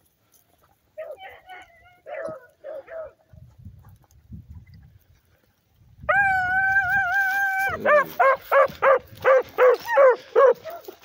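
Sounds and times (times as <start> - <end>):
dog howling: 6.1 - 8.9.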